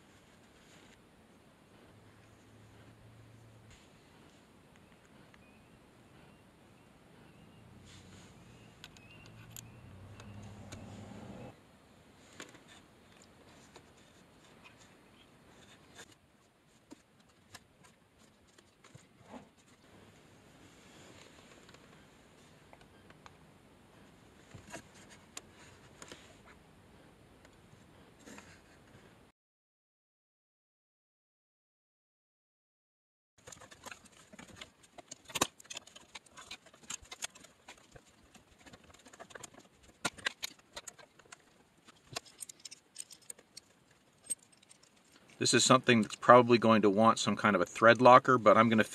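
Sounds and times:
metal parts clicking and scraping: 33.4 - 45.4.

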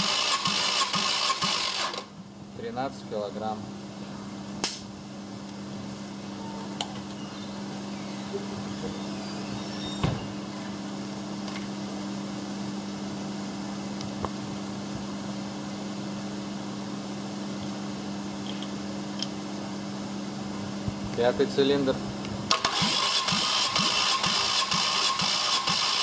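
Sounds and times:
low machine hum: 2.1 - 22.6.

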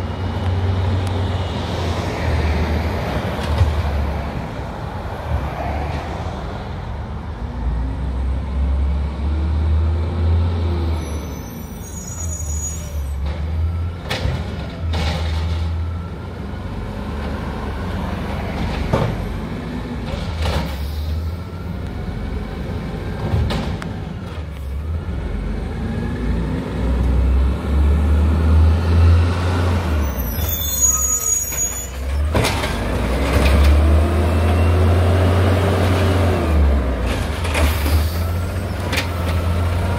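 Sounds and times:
short high squeals: 11.0 - 13.2, 30.0 - 32.3.

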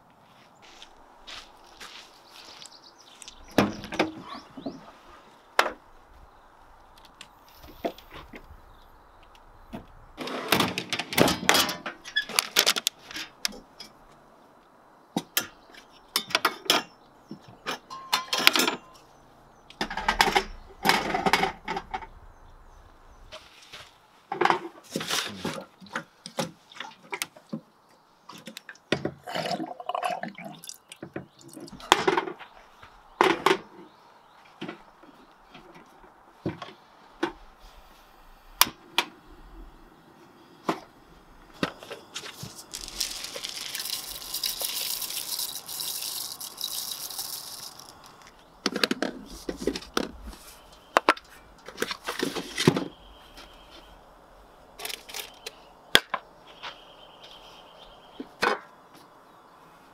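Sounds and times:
saucepan set on camp stove: 41.6 - 48.9.

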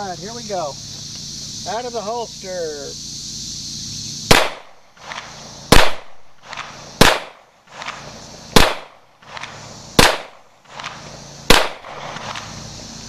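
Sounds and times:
pistol shots: 4.3 - 12.5.

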